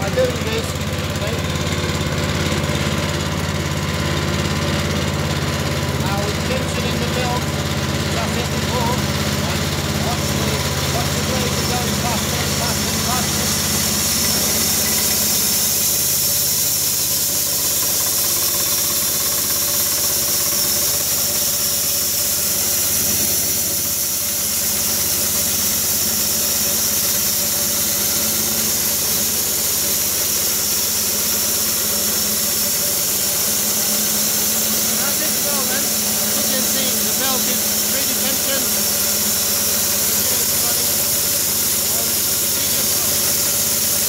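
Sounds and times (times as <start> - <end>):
band sawmill engine drone: 0.0 - 44.0
band blade high hiss: 10.1 - 44.0.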